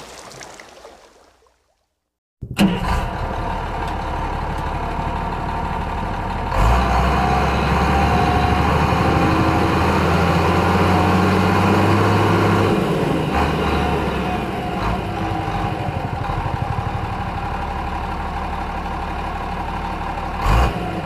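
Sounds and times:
heavy vehicle engine humming: 0:02.5 - 0:21.0.

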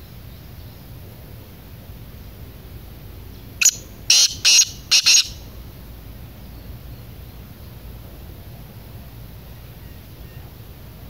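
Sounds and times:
francolin calling: 0:03.6 - 0:05.5.

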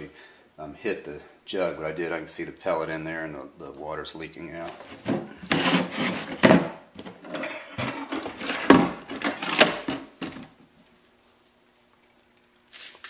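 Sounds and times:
plastic jug rustling and knocking: 0:04.6 - 0:10.6.

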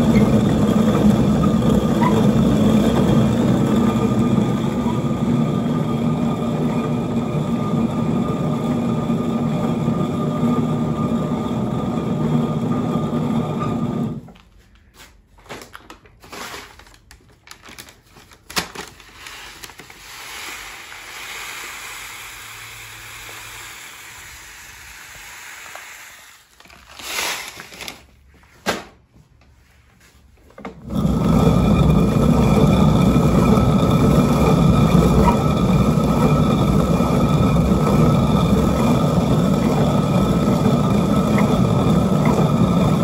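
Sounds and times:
millstone rumbling grind: 0:00.0 - 0:14.1, 0:30.8 - 0:43.0
paper rustling: 0:14.4 - 0:20.6, 0:26.5 - 0:28.9
grain pouring hiss: 0:19.2 - 0:27.7.

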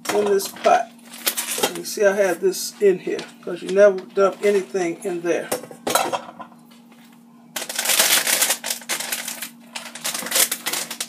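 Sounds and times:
packet crinkling and rustling: 0:00.0 - 0:02.4, 0:07.6 - 0:11.0.

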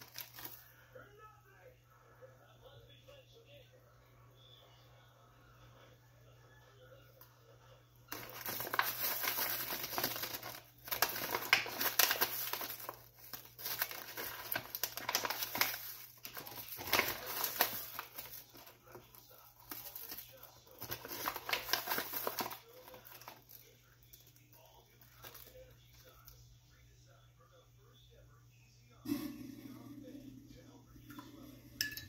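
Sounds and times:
paper pouch crinkling: 0:00.0 - 0:00.6, 0:08.1 - 0:26.3.

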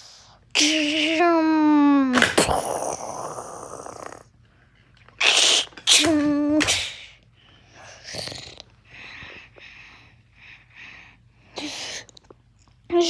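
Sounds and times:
child hissing: 0:05.2 - 0:07.2.

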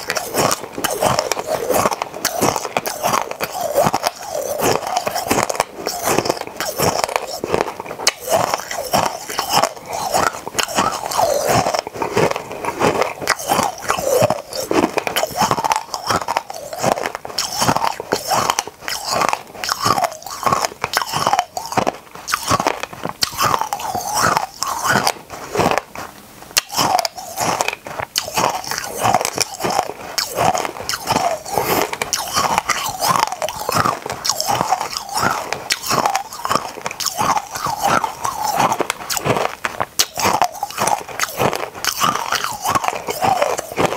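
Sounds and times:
crunching and chewing candies: 0:00.0 - 0:43.9.

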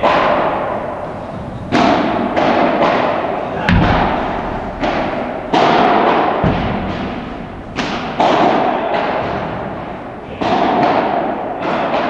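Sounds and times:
rackets hitting balls: 0:01.3 - 0:12.0
balls bouncing on court: 0:03.7 - 0:08.4.

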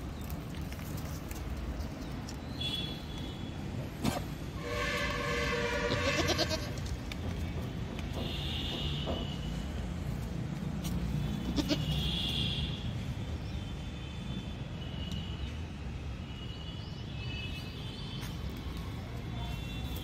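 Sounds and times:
young goat bleating: 0:05.8 - 0:06.8, 0:11.4 - 0:12.0.

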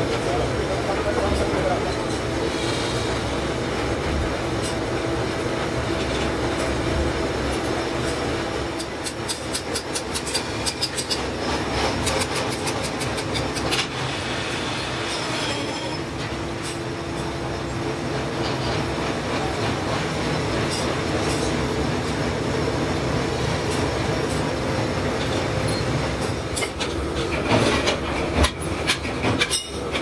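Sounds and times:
gear-cutting machine clatter: 0:07.4 - 0:14.1, 0:25.2 - 0:30.0.

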